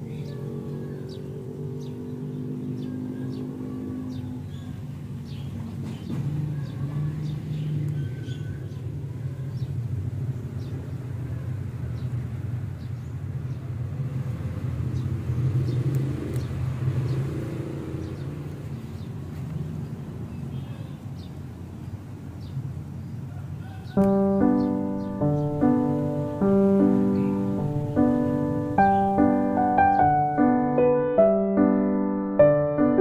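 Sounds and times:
high bird chirps: 0:23.9 - 0:30.4.

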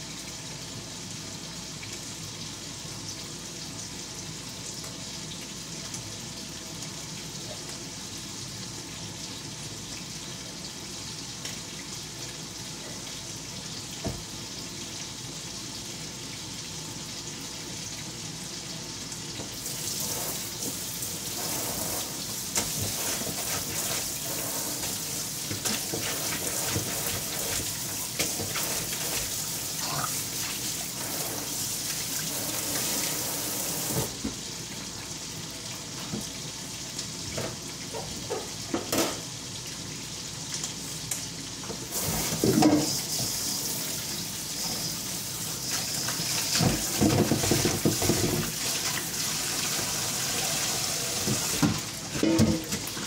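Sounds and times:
tap water running into sink: 0:13.9 - 0:14.3, 0:19.3 - 0:34.9, 0:41.6 - 0:53.0
dishware clattering: 0:52.2 - 0:52.8.

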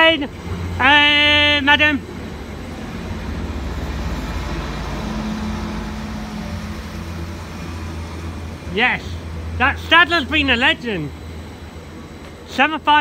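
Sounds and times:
low hum: 0:00.0 - 0:13.0
train wheels rumbling on rail: 0:00.0 - 0:13.0.

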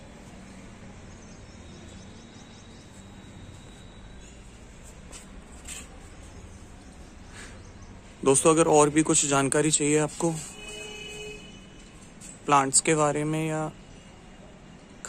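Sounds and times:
faint high bird chirps: 0:01.0 - 0:04.7.

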